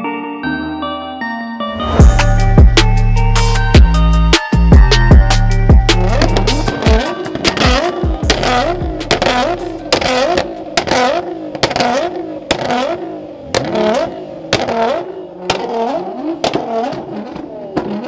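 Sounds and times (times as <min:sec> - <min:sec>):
car engine revving: 0:02.0 - 0:18.0
exhaust bangs: 0:04.8 - 0:18.0.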